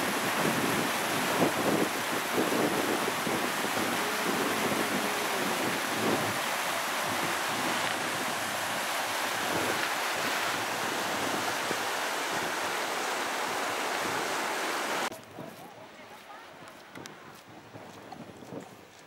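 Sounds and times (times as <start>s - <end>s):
river water rushing: 0.0s - 15.1s.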